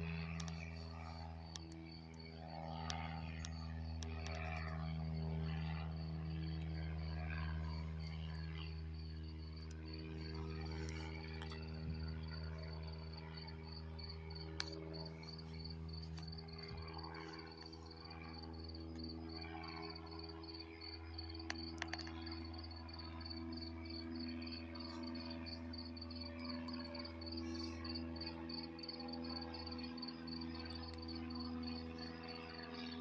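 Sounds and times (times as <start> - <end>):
steady low hum: 0.0 - 33.0
crickets chirping: 0.2 - 33.0
faint clicks: 21.5 - 22.2.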